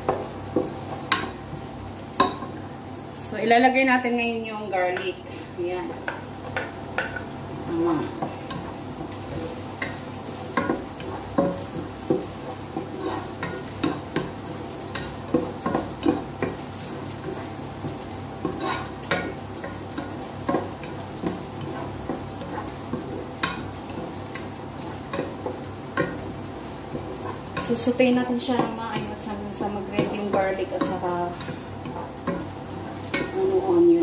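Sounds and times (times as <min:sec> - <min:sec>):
onion and garlic sizzling in oil: 0:00.0 - 0:34.0
wooden spoon scraping a pot: 0:07.9 - 0:34.0.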